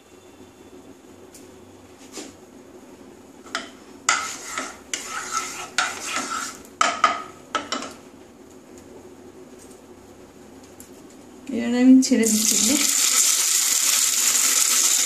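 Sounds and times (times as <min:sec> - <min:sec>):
wooden spatula scraping a pan: 0:04.1 - 0:06.7.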